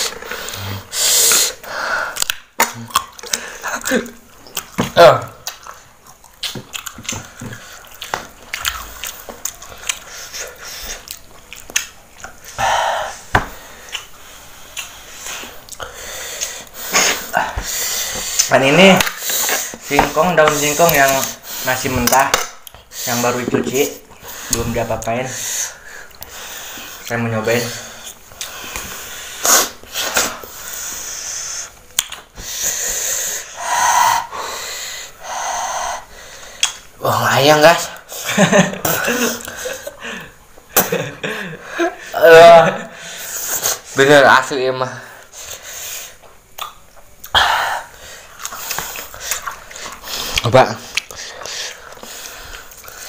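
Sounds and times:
person hissing wheezy breaths: 0.0 - 2.2, 12.5 - 18.5, 27.6 - 31.8, 32.4 - 36.8, 47.3 - 50.4.

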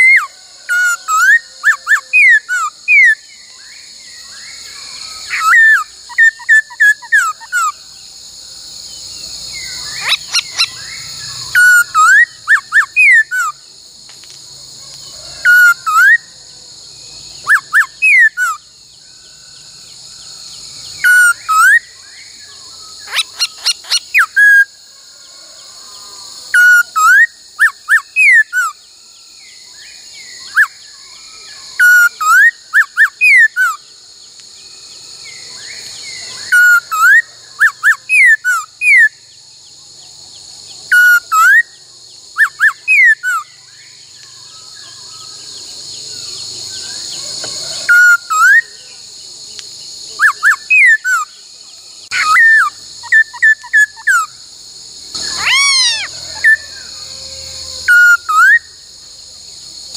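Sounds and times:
bird singing whistled phrases: 4.5 - 7.7, 9.6 - 13.6, 17.4 - 18.6, 21.0 - 21.9, 26.6 - 28.8, 42.4 - 43.5
steady high hiss: 43.2 - 59.9.

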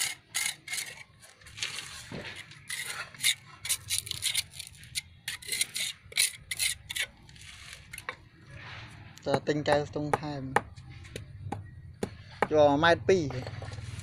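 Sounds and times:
trowel scraping mortar on bricks: 0.0 - 9.0.

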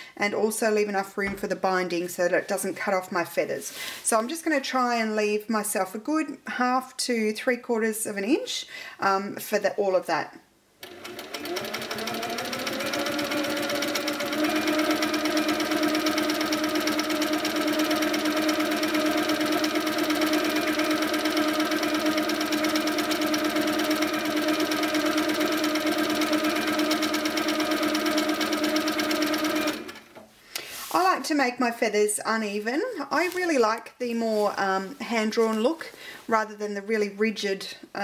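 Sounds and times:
quilting machine stitching fast: 10.8 - 30.2.

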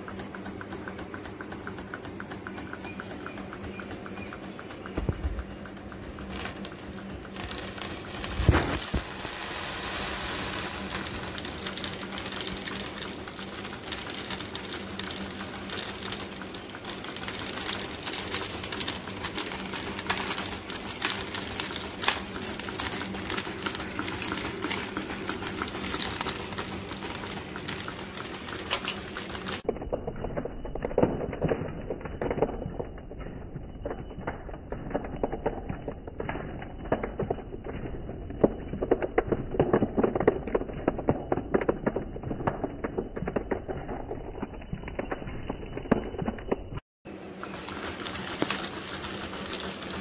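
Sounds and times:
small motor hum: 0.0 - 29.7
clay balls rattling on cardboard: 0.0 - 46.8, 47.4 - 50.0.

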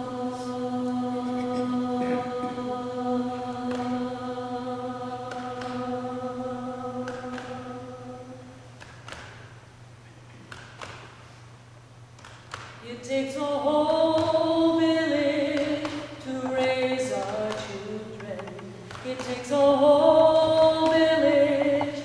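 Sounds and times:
woman singing unaccompanied: 12.8 - 22.0.

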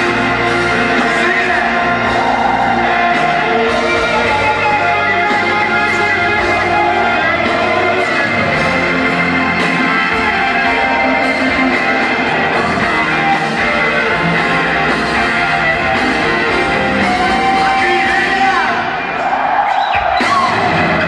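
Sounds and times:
electric guitar long notes: 0.0 - 19.1
live rock band playing: 0.0 - 21.0.

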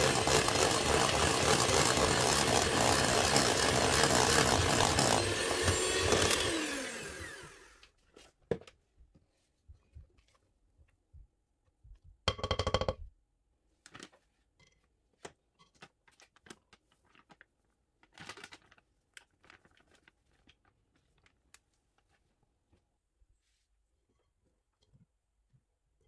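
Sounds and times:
sugar pouring into sieve: 0.0 - 5.3
wooden spoon knocking in bowl: 12.3 - 13.1.

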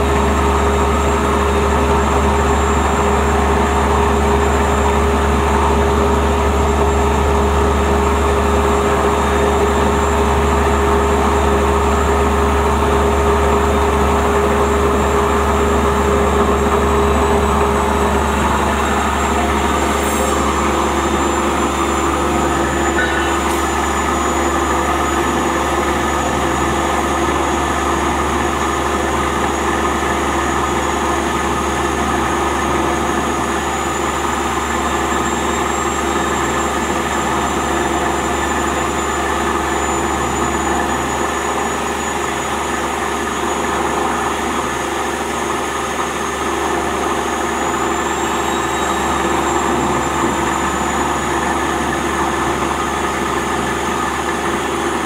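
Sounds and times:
plastic shredding machine droning: 0.0 - 55.0
thin high whine: 17.3 - 26.4.

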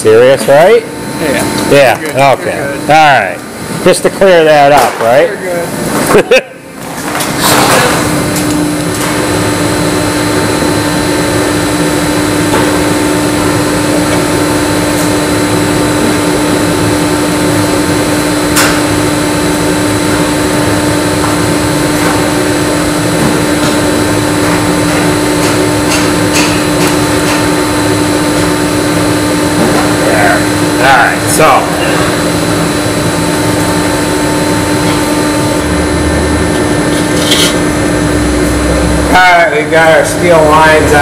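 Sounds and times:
machine humming drone: 0.0 - 41.0.

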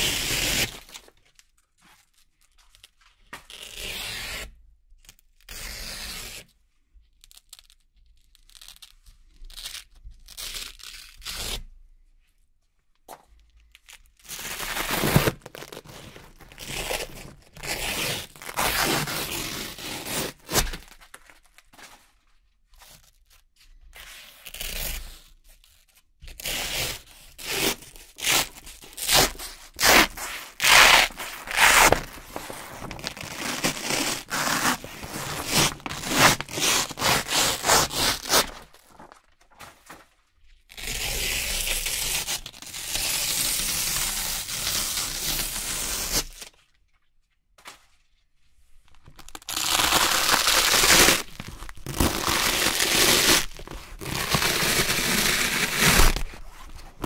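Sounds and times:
velcro strips ripping apart: 7.2 - 11.6, 13.7 - 21.6, 26.4 - 40.0, 49.1 - 57.0.

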